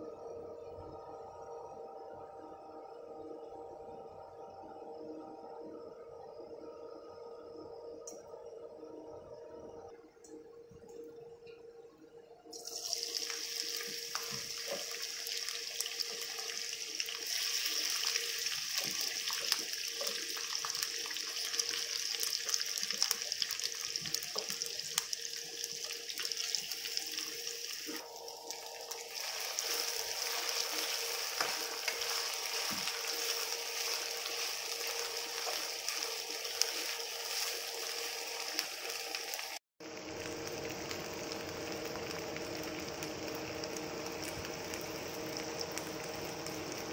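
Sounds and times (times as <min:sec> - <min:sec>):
potatoes sizzling in hot oil: 0:12.6 - 0:46.9.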